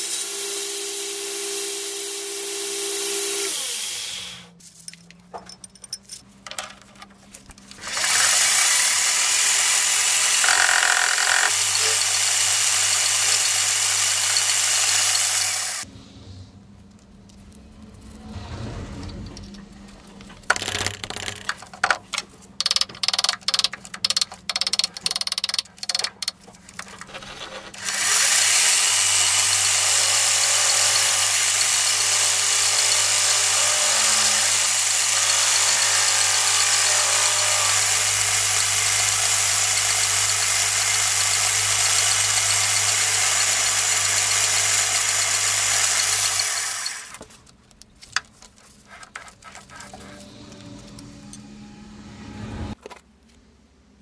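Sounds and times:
metal lathe running: 7.8 - 15.8, 27.7 - 47.1
clicks and knocks: 19.1 - 27.8.

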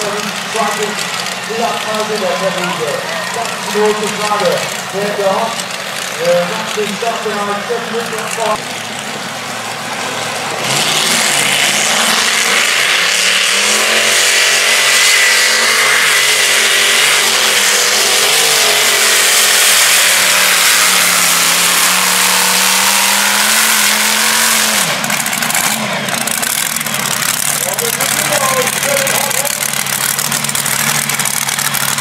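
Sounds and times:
tractor engine at high revs: 0.0 - 32.0.

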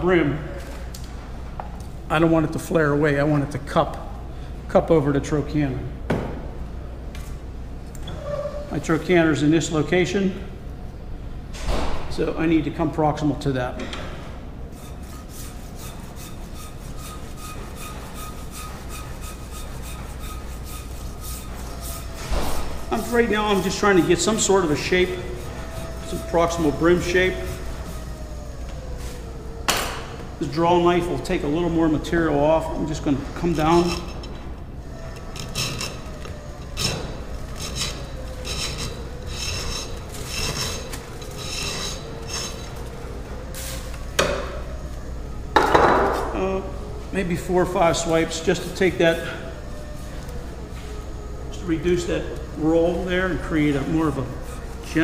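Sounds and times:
rasp scraping plaster: 14.8 - 26.7, 35.2 - 42.8.

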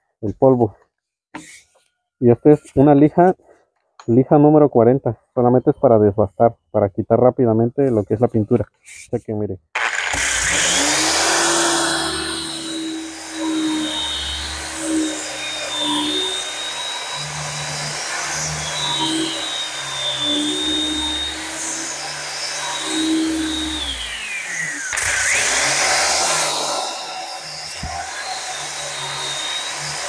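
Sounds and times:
angle grinder sanding wood: 9.8 - 30.0.

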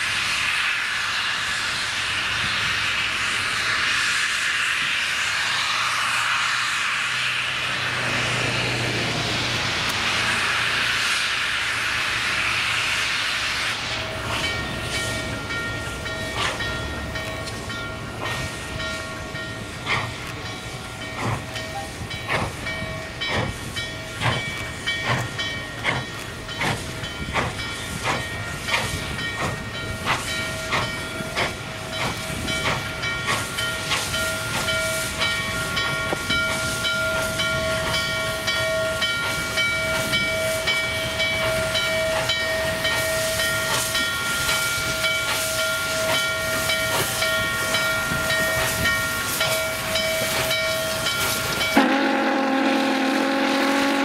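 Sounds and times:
hiss of steam: 0.0 - 54.0
steam locomotive chuffing: 0.0 - 54.0
steam whistle chord: 49.6 - 54.0.

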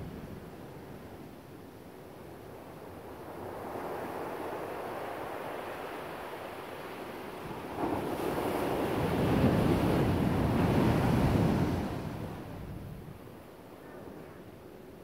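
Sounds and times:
ocean surf: 3.3 - 12.9.

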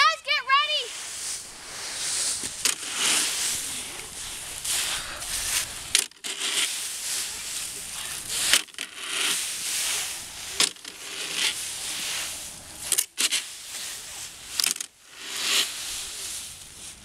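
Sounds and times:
rake through dry leaves: 0.6 - 17.0
rake clicks: 2.4 - 11.6, 14.4 - 15.8.

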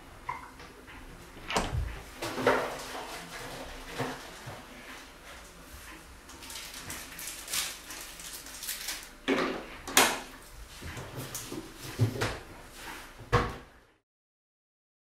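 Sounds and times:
knocks and clatter in cupboard: 1.5 - 4.2, 11.0 - 12.4.

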